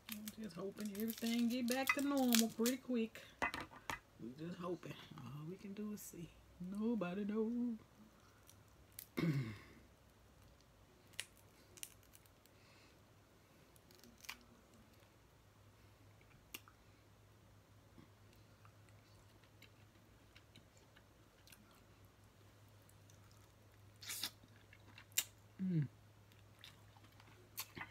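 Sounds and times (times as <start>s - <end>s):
crab shells cracking: 0.0s - 2.8s, 10.4s - 12.5s.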